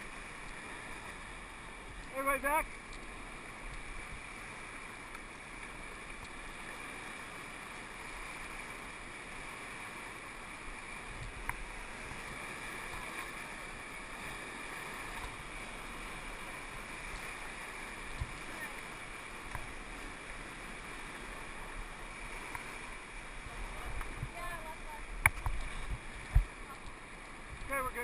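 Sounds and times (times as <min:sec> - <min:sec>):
whitewater rapids rushing: 0:00.0 - 0:28.0.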